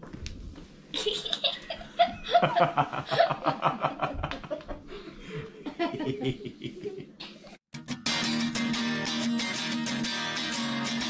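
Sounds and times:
man laughing: 1.0 - 7.5
small boy laughing: 1.0 - 7.6.

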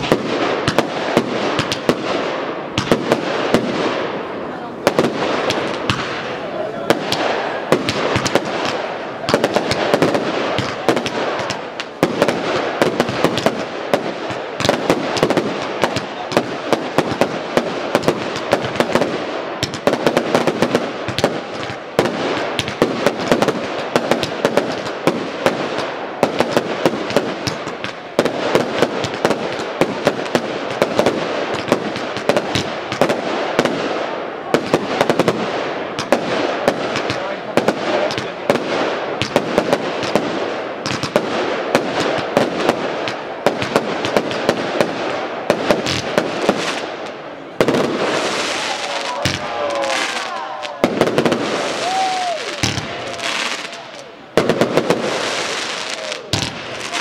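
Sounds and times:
firework shells bursting: 0.0 - 4.0, 4.9 - 33.8, 45.6 - 57.0
dense firework crackling: 0.0 - 57.0.

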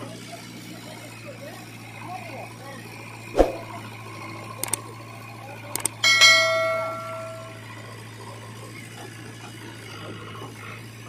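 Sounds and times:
metallic clang ringing: 6.0 - 7.7.

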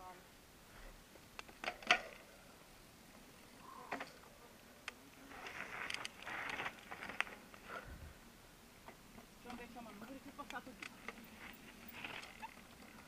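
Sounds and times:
tires crunching gravel: 5.2 - 7.5, 10.9 - 13.0.

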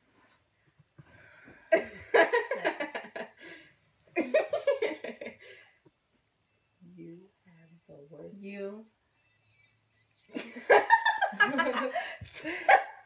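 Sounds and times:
girls laughing: 10.3 - 13.0.

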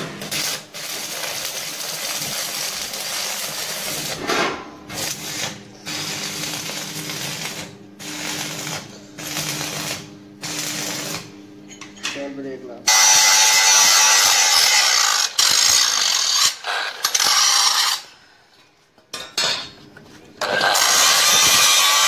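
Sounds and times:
arc welding crackling sizzle: 0.0 - 11.8, 12.4 - 18.2, 20.5 - 22.0.

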